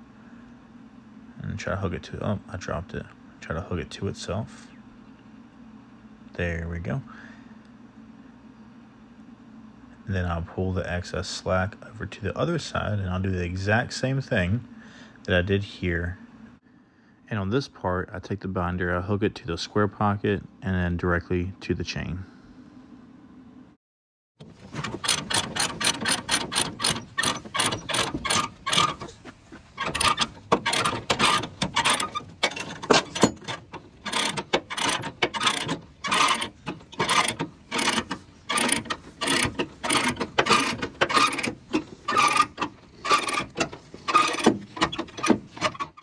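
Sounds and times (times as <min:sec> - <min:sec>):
ratchet binder clicking: 0:24.7 - 0:29.2, 0:29.8 - 0:46.0.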